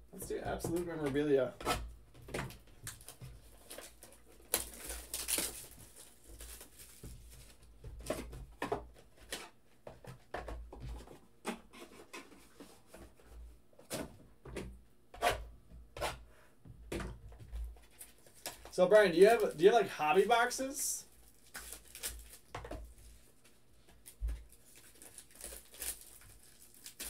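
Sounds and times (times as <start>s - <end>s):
cardboard rustling and tearing: 2.9s - 7.7s, 21.2s - 23.3s, 24.0s - 27.0s.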